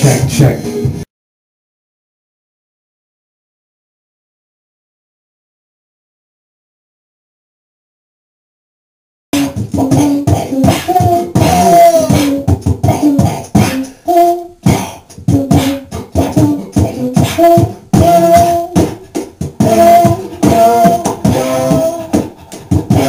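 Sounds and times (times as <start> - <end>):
beatboxing into microphone: 0.0 - 1.1, 9.4 - 23.0
short hummed notes: 9.4 - 19.0, 19.6 - 23.0.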